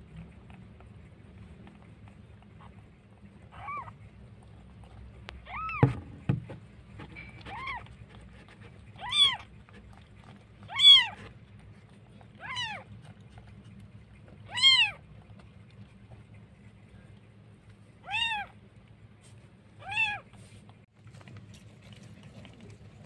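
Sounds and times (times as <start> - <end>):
kitten mewing: 3.5 - 4.0, 5.4 - 6.0, 8.9 - 9.5, 10.7 - 11.2, 12.4 - 13.2, 14.4 - 15.1, 18.0 - 18.6, 19.8 - 20.3
dull knocks: 5.7 - 6.7.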